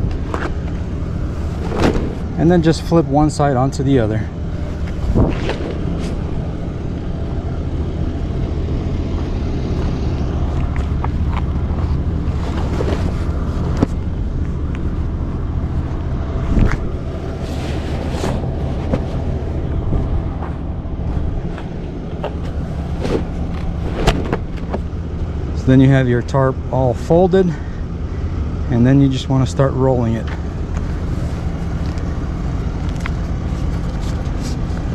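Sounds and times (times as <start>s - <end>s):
low rumble: 0.0s - 26.7s.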